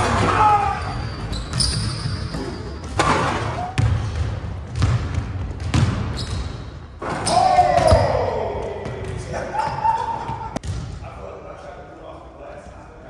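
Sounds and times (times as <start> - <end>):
basketball bouncing on wood floor: 2.9 - 6.4.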